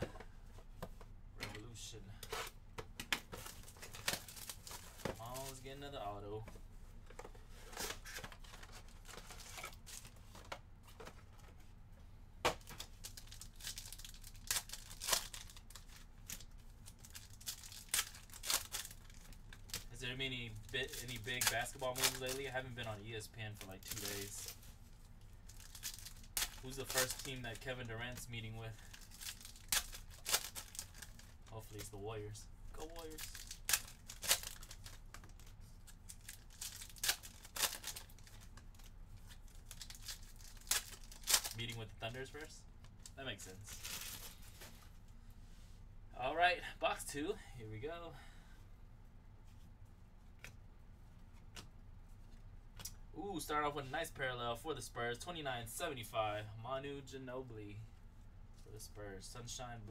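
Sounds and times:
foil wrappers crinkling: 3.4s - 5.7s, 12.8s - 31.9s, 32.8s - 41.8s, 43.6s - 44.8s.

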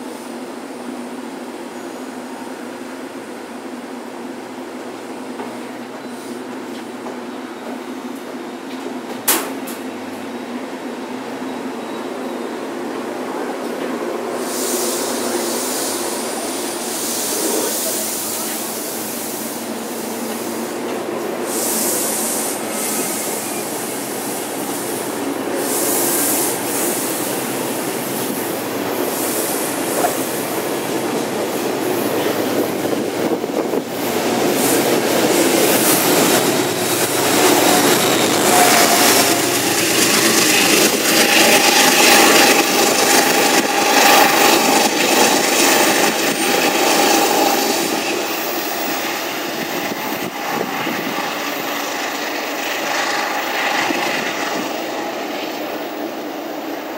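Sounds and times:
train wheels rumbling on rail: 0.0s - 56.9s
high whining tone: 34.5s - 55.1s.

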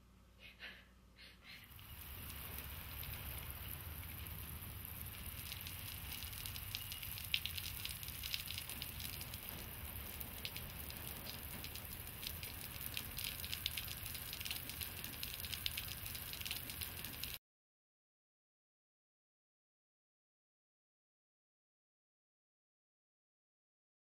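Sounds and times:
rain on concrete: 1.7s - 17.4s.

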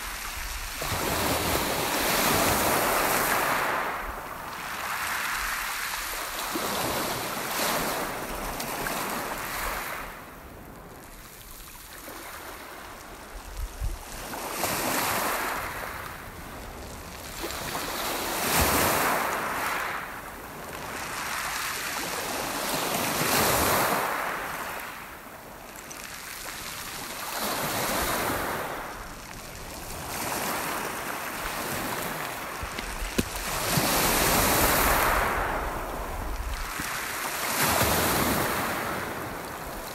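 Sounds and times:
waves breaking on pebble beach: 0.0s - 10.2s, 14.0s - 39.9s
wind on microphone: 13.3s - 15.0s, 28.0s - 39.9s.

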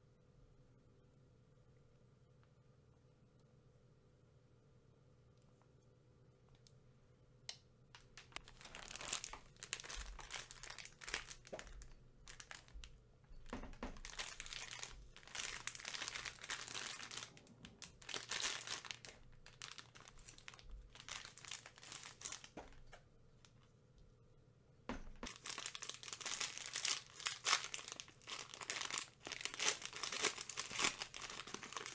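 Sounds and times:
plastic wrappers crinkling: 8.0s - 23.0s, 24.9s - 31.9s.

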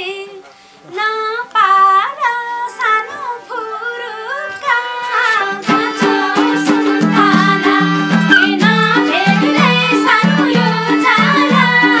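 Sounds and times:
woman singing folk song: 0.0s - 12.0s
instrumental accompaniment: 2.7s - 12.0s
rhythmic instrumental passage: 3.5s - 12.0s.

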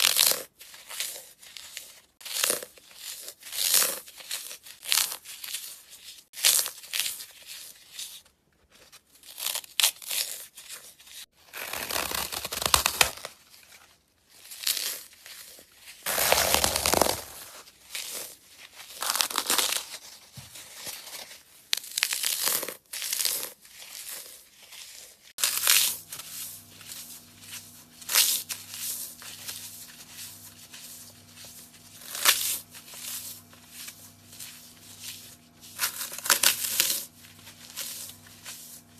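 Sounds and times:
dry foam crunching and crackling: 11.5s - 13.8s, 14.4s - 38.9s
faint low hum: 25.4s - 38.9s.

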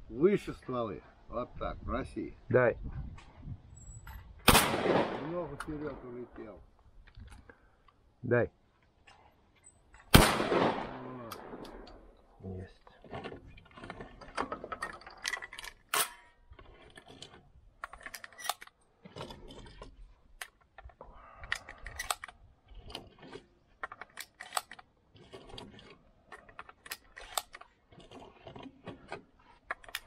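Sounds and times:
shotgun shells loading clicks: 9.0s - 12.3s, 13.5s - 30.0s.

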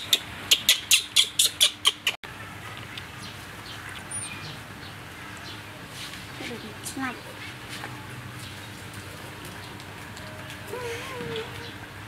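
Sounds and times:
high bird chirp: 3.6s - 5.6s.

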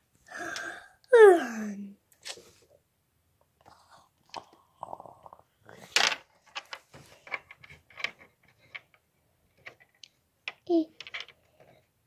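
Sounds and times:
plastic toys clicking and knocking: 5.9s - 11.9s.

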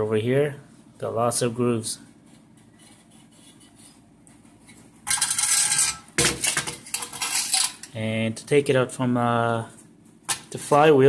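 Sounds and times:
metal scraping on concrete: 5.1s - 6.1s, 6.9s - 7.9s.

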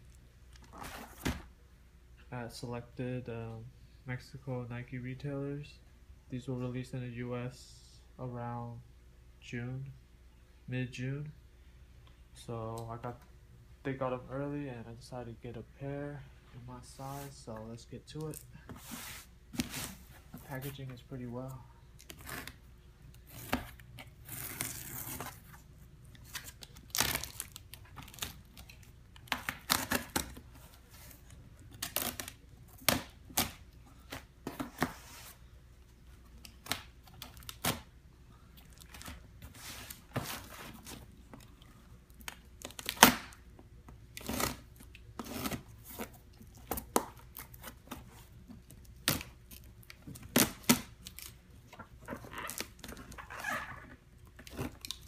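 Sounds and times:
packing tape ripping: 26.2s - 30.4s, 31.7s - 33.6s, 44.2s - 45.7s.

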